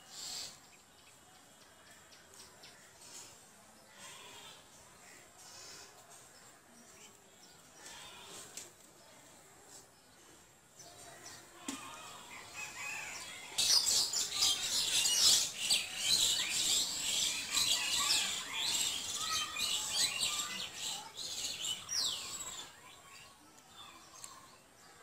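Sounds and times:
small birds chirping: 12.3s - 25.0s.

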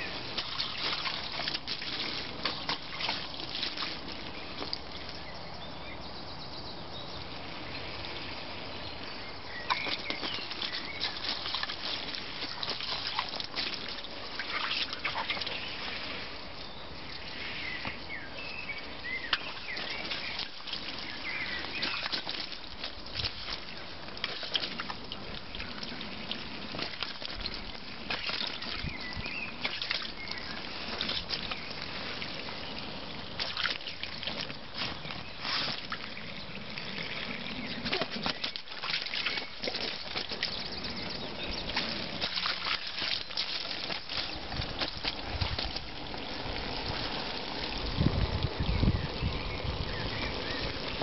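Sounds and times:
dog lapping at water: 0.0s - 5.0s, 9.6s - 16.1s, 19.1s - 48.8s
water trickling into a pool: 0.0s - 51.0s.

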